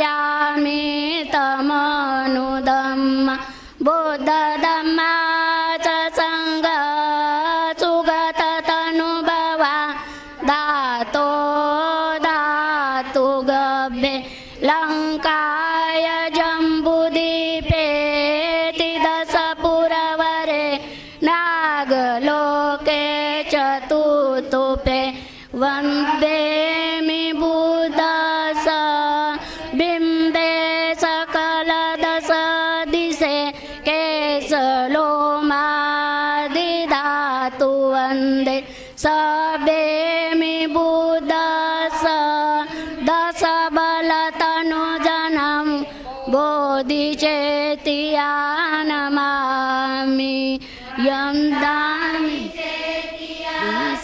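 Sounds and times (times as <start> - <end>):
women and girls chanting: 0.0 - 54.0.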